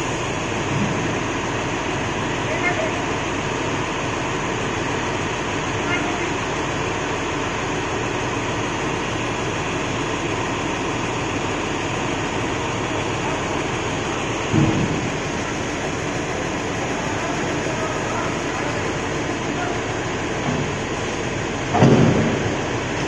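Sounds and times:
diesel engine rumbling: 0.0 - 23.0
loud knock: 14.5 - 15.0, 21.7 - 22.4.

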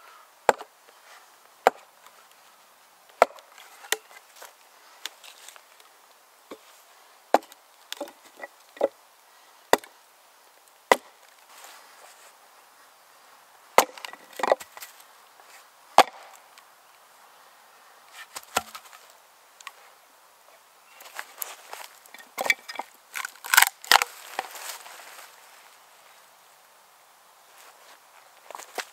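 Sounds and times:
maul knocking wooden wedges: 3.2 - 4.1, 13.8 - 14.7, 16.0 - 16.3, 22.1 - 22.9.

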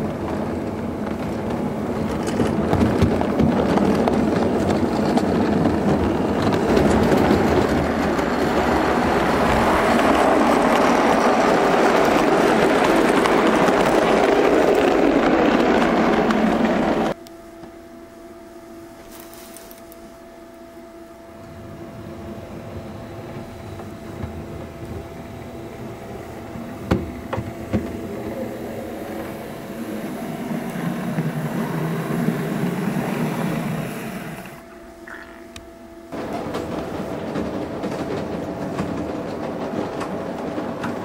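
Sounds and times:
model train rumbling on track: 0.0 - 17.2, 21.5 - 34.7, 36.1 - 41.0
wheels clicking over rail joints: 0.0 - 17.2, 22.6 - 41.0
model locomotive wheels and motor: 0.0 - 17.7, 21.4 - 34.7.

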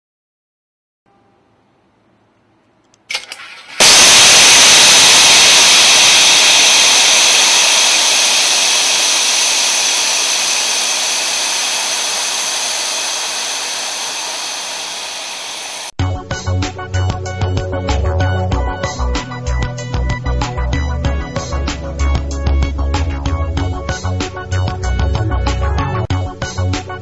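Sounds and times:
high-pressure air hissing: 3.2 - 16.0.

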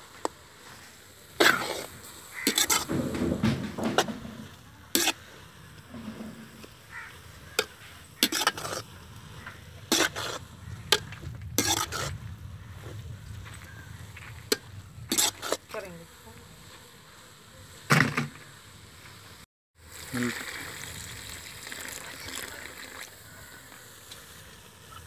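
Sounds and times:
ladle scraping metal pot: 1.4 - 5.2, 5.8 - 12.2, 14.4 - 15.7.

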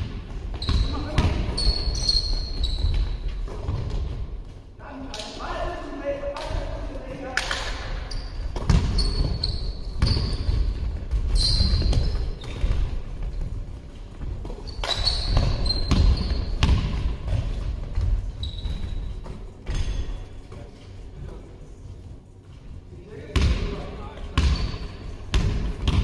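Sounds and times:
basketball bouncing on floor: 0.0 - 1.8, 8.5 - 12.9, 14.2 - 19.9, 23.3 - 23.7, 24.4 - 24.7, 25.3 - 26.0
sneakers squeaking: 0.0 - 4.5, 7.6 - 20.9, 23.3 - 26.0.

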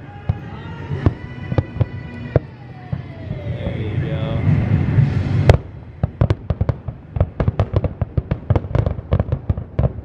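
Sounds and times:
fireworks crackling pops and bangs: 0.0 - 3.6, 5.3 - 10.0
firework boom: 4.4 - 10.0.

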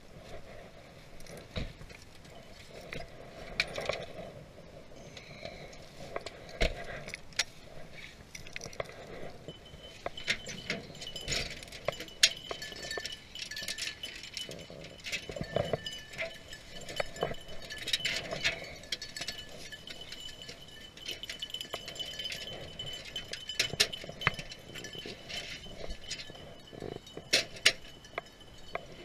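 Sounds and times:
small metal objects jingling: 0.9 - 29.0.

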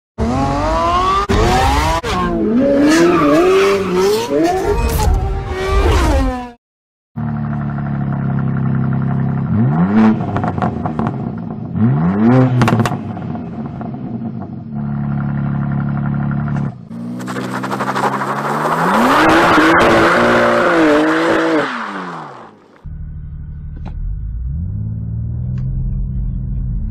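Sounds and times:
car engine idling and revving: 0.2 - 6.6, 7.2 - 26.9.

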